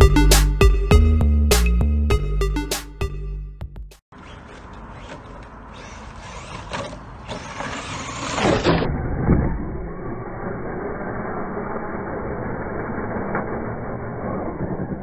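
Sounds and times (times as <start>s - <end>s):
rc car electric motor whining: 4.2s - 15.0s.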